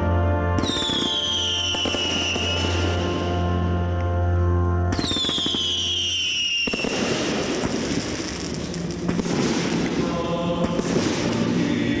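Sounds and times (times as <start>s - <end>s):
firework whistle sliding down: 0.6s - 3.3s, 4.9s - 7.3s
firework crackling: 0.6s - 12.0s.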